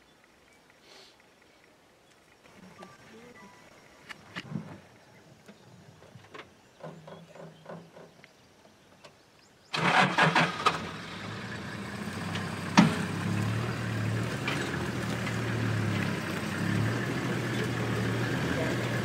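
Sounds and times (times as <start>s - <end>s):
vehicle engine starting and idling: 9.7s - 19.0s.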